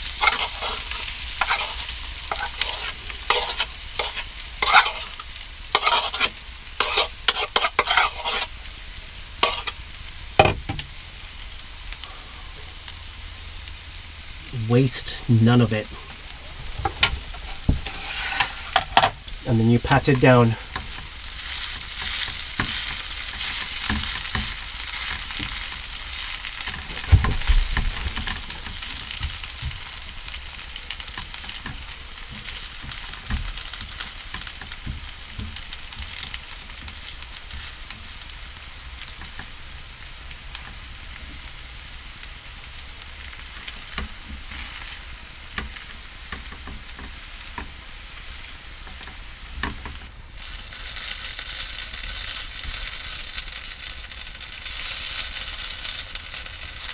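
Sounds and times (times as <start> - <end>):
spatula scraping and tapping pan: 0.0 - 8.5, 9.4 - 9.8, 16.8 - 19.2, 20.1 - 29.9
fritters sizzling in oil: 0.0 - 56.9.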